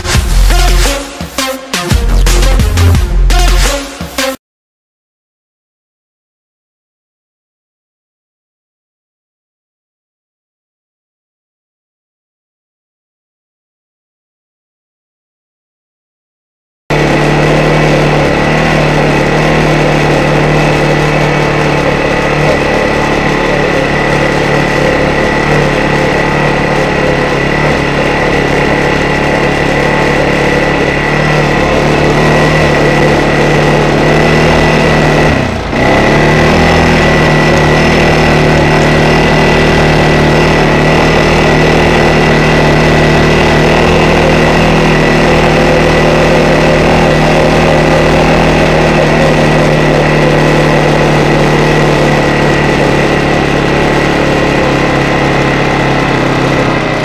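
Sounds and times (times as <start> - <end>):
steady high whine: 0.0 - 4.3, 16.9 - 57.0
atv engine running: 0.0 - 4.4, 16.9 - 57.0.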